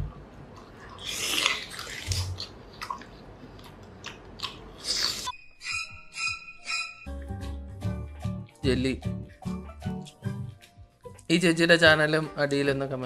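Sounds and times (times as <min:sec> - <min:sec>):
wet chewing and biting: 0:00.5 - 0:05.3
music with steady tones: 0:05.7 - 0:12.5.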